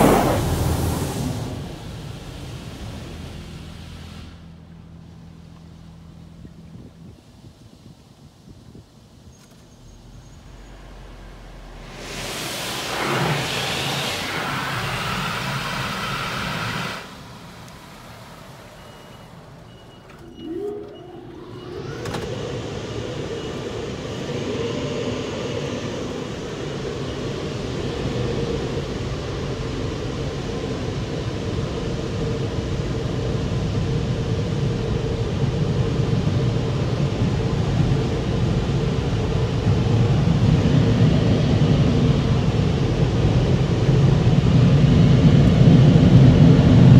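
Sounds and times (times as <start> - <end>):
high-pressure water spray hissing: 0.0 - 4.5, 10.1 - 19.5
air-dryer blowers whining: 10.4 - 46.9.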